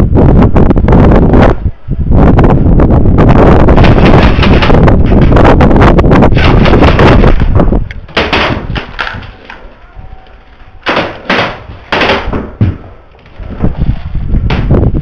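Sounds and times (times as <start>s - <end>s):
airsoft rifle fire: 8.1s - 9.2s, 10.8s - 12.6s
knocks on wooden boards: 8.1s - 9.3s, 10.8s - 12.9s.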